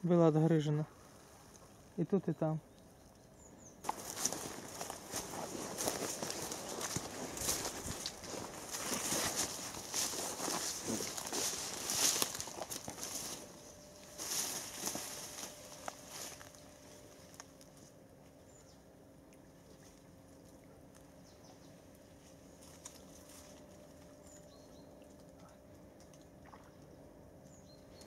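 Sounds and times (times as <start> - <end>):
faint steady hum: 0.0 - 28.0
fishing line handling rustle: 3.8 - 18.5, 22.0 - 26.2.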